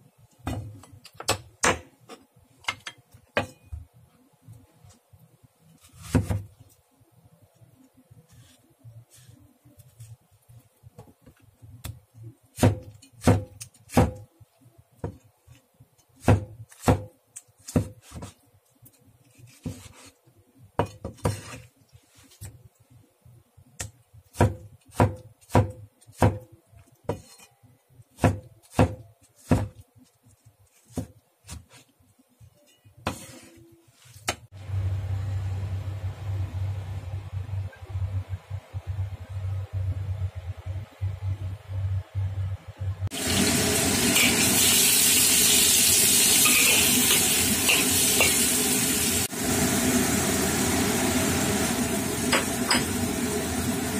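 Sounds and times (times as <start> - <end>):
cleaver chopping on bamboo board: 28.2 - 29.8
steady low hum: 34.5 - 43.1.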